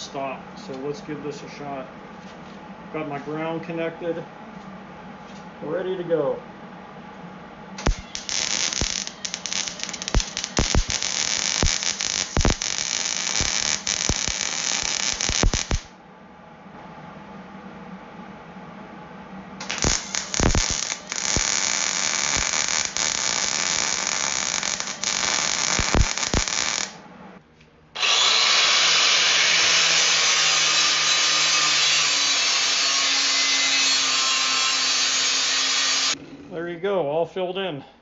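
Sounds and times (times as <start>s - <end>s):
angle grinder grinding: 7.8s - 15.9s, 19.6s - 27.0s, 28.0s - 36.2s
welder crackling and popping: 7.8s - 15.9s, 19.6s - 27.0s.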